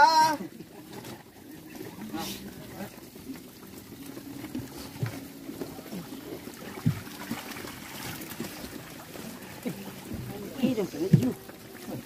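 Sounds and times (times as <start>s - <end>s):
water sloshing in fishing net: 0.0s - 12.0s
knocks and thumps: 6.8s - 7.2s.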